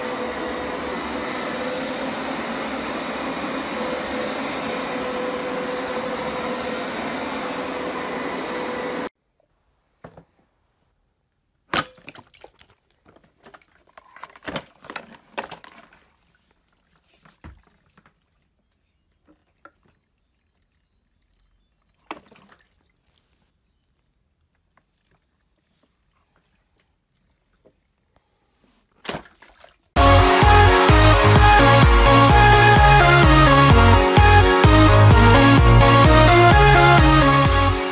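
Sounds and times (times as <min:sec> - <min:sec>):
carpet washer running: 0:00.0 - 0:09.1, 0:30.0 - 0:37.9.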